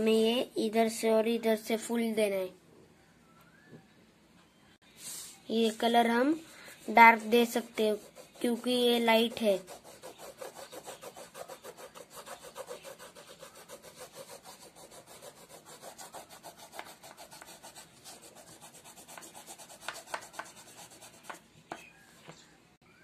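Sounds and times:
oil pastel scratching on paper: 0:05.0 - 0:22.0.

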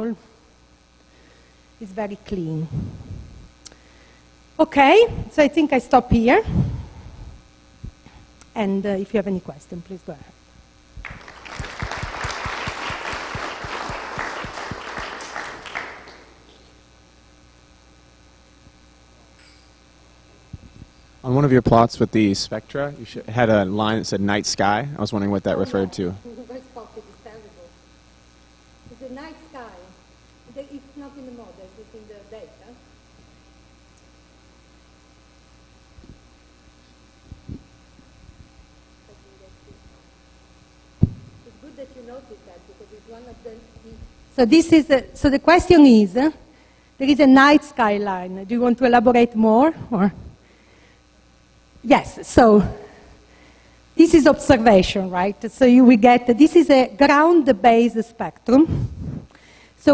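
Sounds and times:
faint steady hum: 0:00.0 - 0:59.9
audience applauding: 0:11.0 - 0:16.5
dull low thumps: 0:41.0 - 0:41.4.

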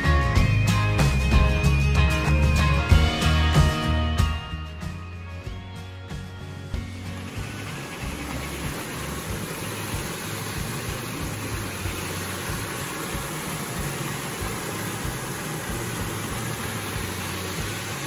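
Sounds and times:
stream rushing over rocks: 0:07.1 - 0:18.0.

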